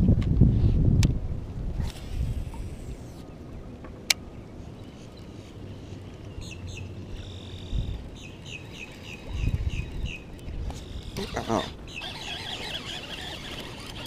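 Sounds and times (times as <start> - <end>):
bird chirping: 6.3 - 14.0.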